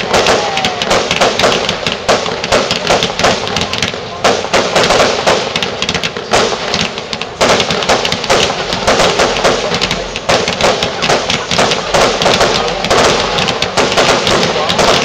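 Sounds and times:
fireworks bangs and crackling: 0.0 - 15.0.

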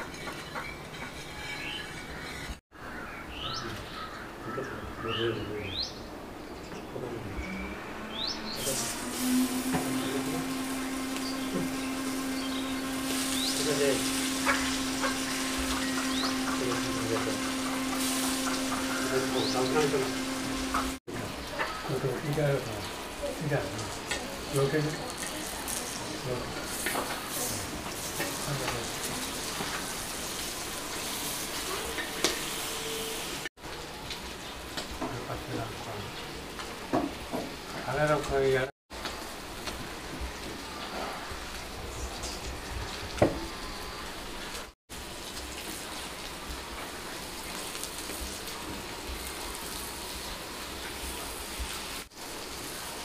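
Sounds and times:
fish sizzling in oil: 8.6 - 53.0
steady low hum: 8.7 - 21.0
bird chirping: 11.1 - 17.0.

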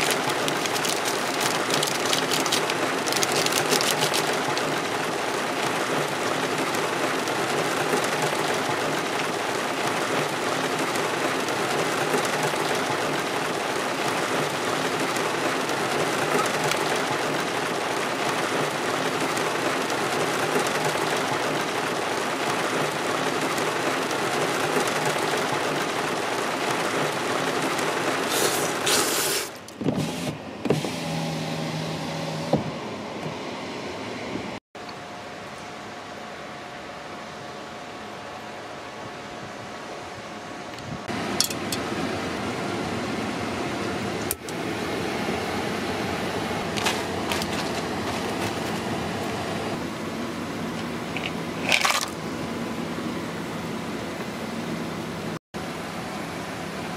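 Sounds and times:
heavy rain on car roof: 0.0 - 30.3, 44.8 - 52.0.

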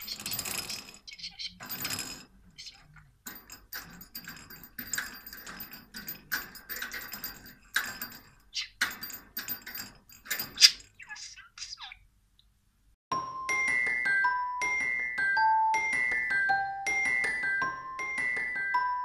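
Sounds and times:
budgie warbling chirps: 1.0 - 1.6, 10.6 - 12.1
glockenspiel tune: 13.1 - 19.0.

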